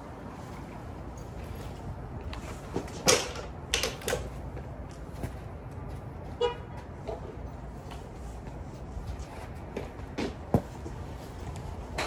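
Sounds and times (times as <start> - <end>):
golf clubs clacking together: 3.0 - 4.3.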